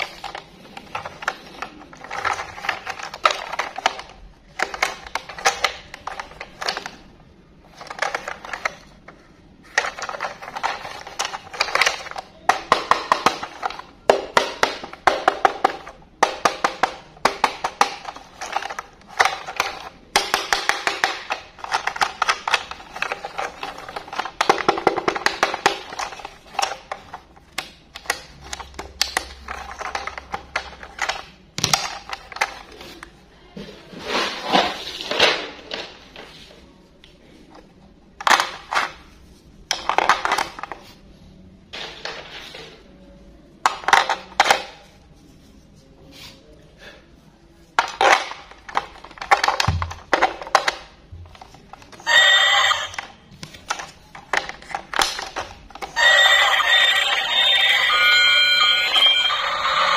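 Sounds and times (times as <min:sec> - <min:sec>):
plastic toy clicking and clattering: 0:00.0 - 0:33.1, 0:38.2 - 0:40.8, 0:43.7 - 0:44.9, 0:47.8 - 0:56.9.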